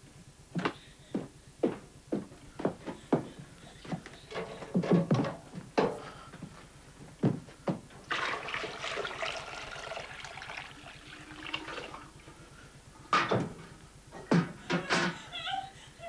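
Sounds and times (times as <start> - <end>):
water pouring into a pot: 8.1 - 12.2.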